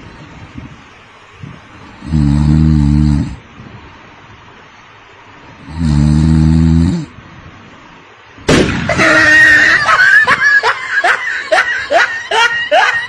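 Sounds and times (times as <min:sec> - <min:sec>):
person snoring: 0:02.0 - 0:03.4, 0:05.6 - 0:07.1
loud slap and splat: 0:08.5 - 0:09.0
woman shrieking and laughing: 0:08.9 - 0:13.0.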